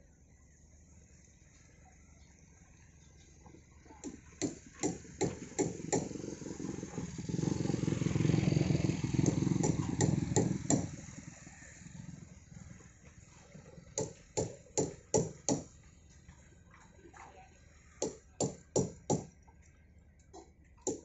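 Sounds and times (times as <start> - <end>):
motorcycle passing: 5.0 - 14.4
sharp knocks: 9.2 - 10.9, 18.0 - 19.3.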